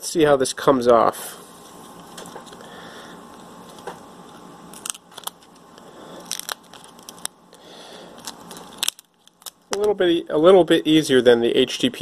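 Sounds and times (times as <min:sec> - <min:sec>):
plastic part clicking and crackling: 0:08.2 - 0:09.9.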